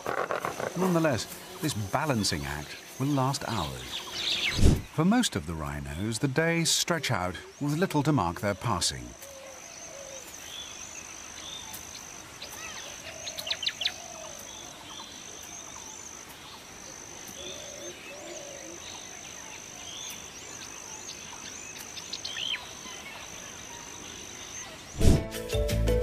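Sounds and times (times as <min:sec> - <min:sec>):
high-pitched insect drone: 0:00.0 - 0:04.8.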